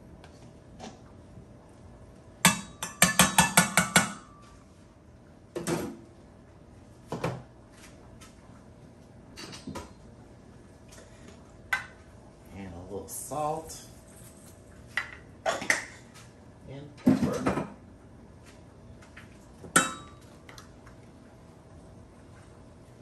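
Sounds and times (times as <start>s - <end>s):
metal utensil knocking on bowl: 2.5s - 4.2s.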